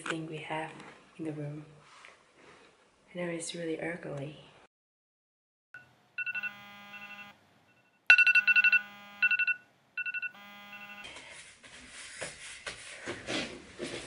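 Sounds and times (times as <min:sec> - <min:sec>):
phone alarm beeping: 0:05.8 - 0:11.2.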